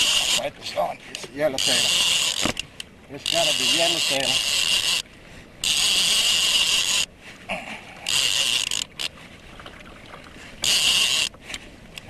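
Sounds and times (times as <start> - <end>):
fishing reel drag ratcheting: 0.0 - 0.5, 1.1 - 7.1, 8.0 - 9.2, 10.6 - 11.6.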